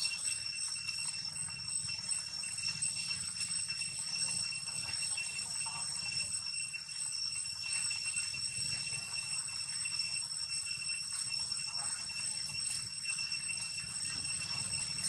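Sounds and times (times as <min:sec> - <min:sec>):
high-pitched whine: 0:00.0 - 0:15.0.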